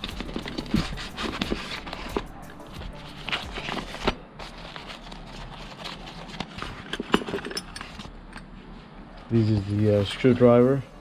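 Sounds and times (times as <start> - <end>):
tool pouch rustling: 0.0 - 8.1
tools clicking and knocking: 6.8 - 8.5.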